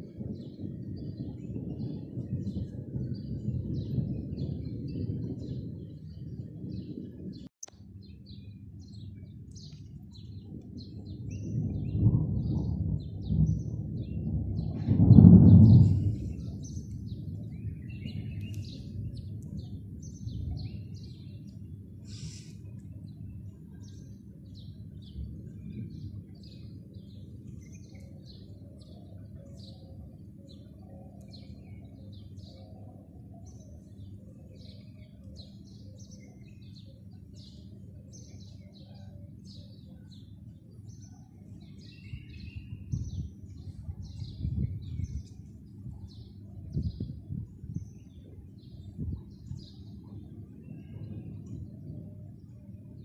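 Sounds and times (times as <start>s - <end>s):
small birds chirping: 0.3s - 53.0s
low rumble: 8.3s - 28.5s.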